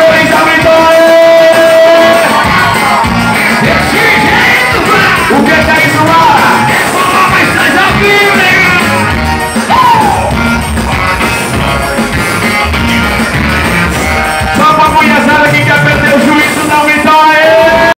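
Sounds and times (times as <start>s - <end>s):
man singing: 0.0s - 2.6s, 3.5s - 9.0s, 14.4s - 17.9s
live band music through a pa: 0.0s - 17.9s.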